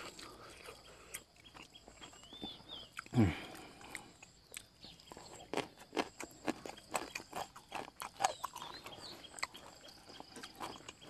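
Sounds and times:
man chewing with wet smacking: 0:00.0 - 0:11.0.

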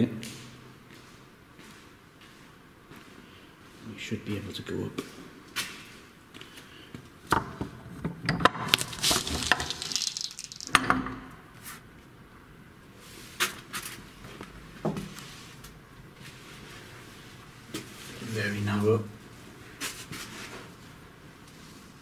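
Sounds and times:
rustling and scraping: 0:08.6 - 0:10.8, 0:19.4 - 0:22.0.

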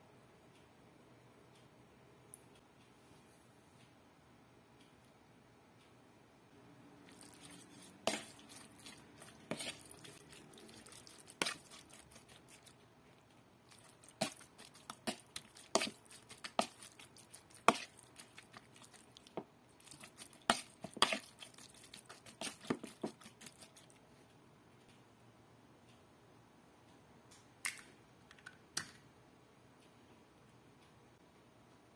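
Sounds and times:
metal spoon scraping plastic bowl: 0:07.1 - 0:12.8, 0:13.7 - 0:19.0, 0:19.8 - 0:23.8
wet skin being turned: 0:07.1 - 0:24.0.

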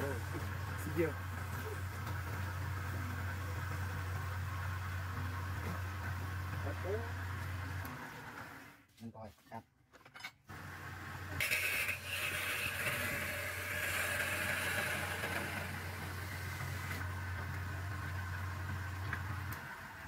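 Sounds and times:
wood lathe motor hum: 0:10.5 - 0:20.0.

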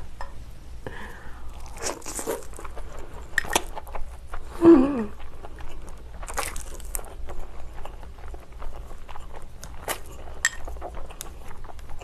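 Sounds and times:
crunchy chewing: 0:01.5 - 0:12.0
person humming: 0:04.6 - 0:05.2.

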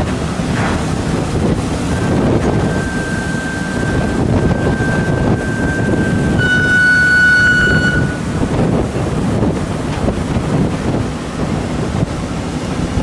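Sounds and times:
steady high whine: 0:00.0 - 0:09.9
sea noise: 0:00.0 - 0:13.0
wind on microphone: 0:00.0 - 0:13.0.

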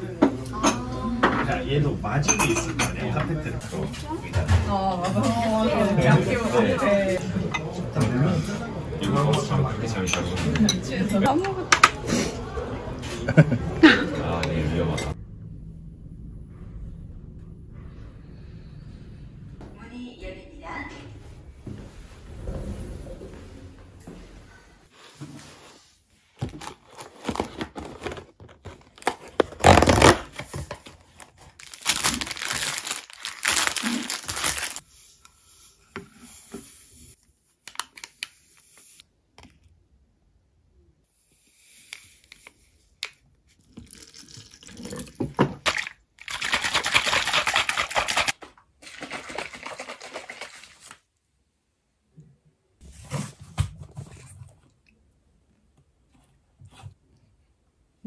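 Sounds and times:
packaging rustling and tearing: 0:26.4 - 0:34.8.

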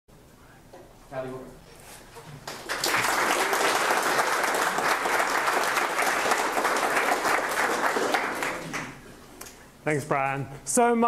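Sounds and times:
audience applauding: 0:02.4 - 0:09.1.

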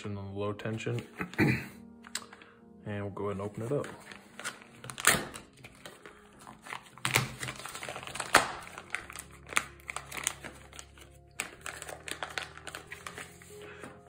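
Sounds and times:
plastic bag crinkling: 0:03.5 - 0:14.0.

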